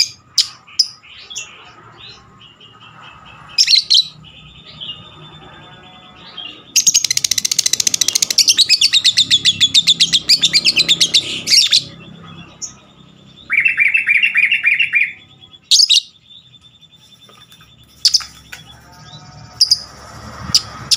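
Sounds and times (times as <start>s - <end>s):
bird chirps: 0.0s - 20.9s
bird chattering trill: 6.1s - 19.9s.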